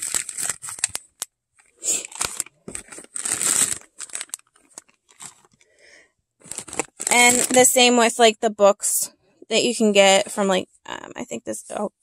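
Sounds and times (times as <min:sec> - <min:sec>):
plastic bag crinkling: 0:00.0 - 0:01.2, 0:01.8 - 0:05.6, 0:06.4 - 0:07.9
packaged items rustling: 0:00.0 - 0:05.7, 0:06.4 - 0:07.9.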